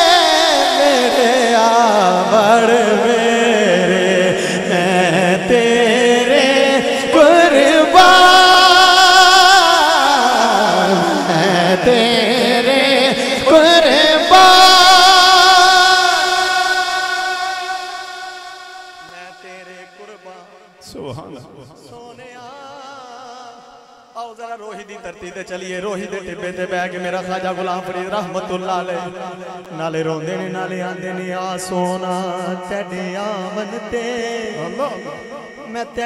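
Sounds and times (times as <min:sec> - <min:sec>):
man singing solo: 0:00.0 - 0:23.3.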